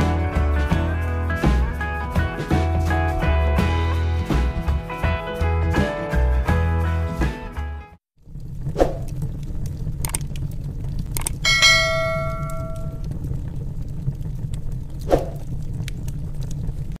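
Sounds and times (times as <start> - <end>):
wood fire crackling and popping: 8.2 - 17.0
bell chime ding: 11.5 - 13.0.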